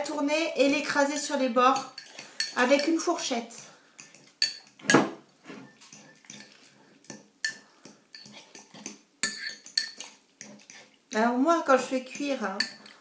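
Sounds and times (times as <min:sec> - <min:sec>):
metal fork scraping ceramic bowl: 0:00.6 - 0:04.8, 0:05.6 - 0:06.7, 0:07.4 - 0:10.9, 0:11.7 - 0:13.0.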